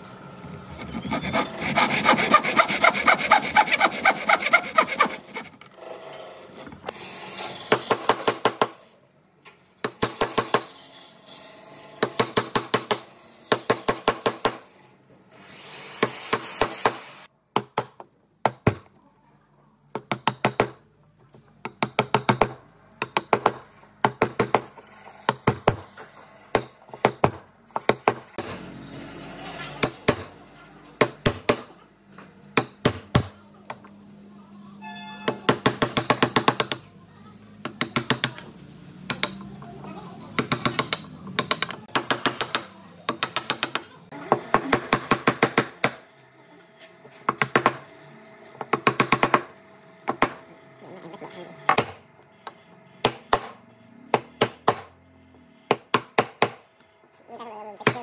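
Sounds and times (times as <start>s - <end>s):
scraping on wood: 0.7s - 6.9s.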